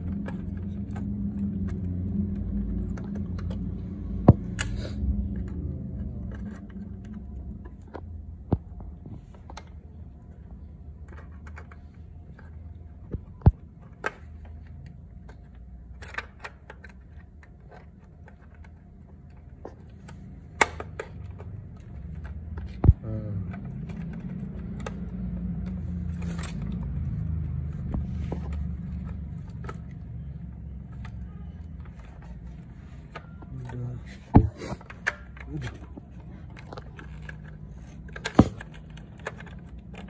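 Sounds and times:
handling noises: 0.0s - 40.0s.

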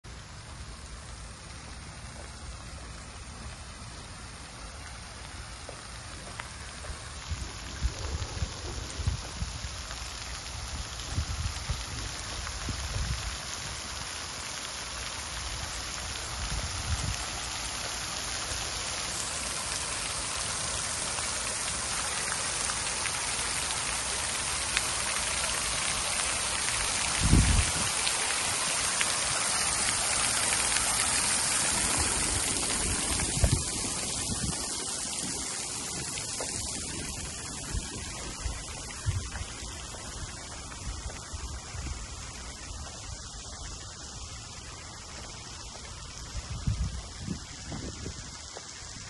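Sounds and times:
fountain water splashing: 0.0s - 49.0s.

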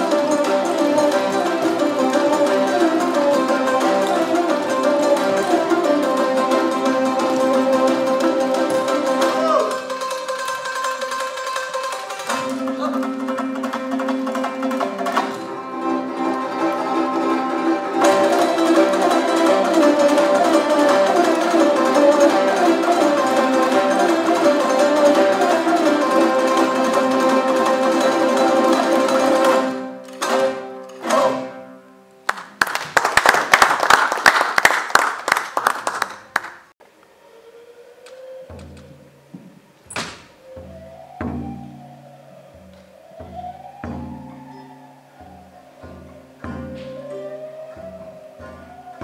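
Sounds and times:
zither: 0.0s - 32.0s
plucked lutes: 0.0s - 32.5s, 38.1s - 49.0s.

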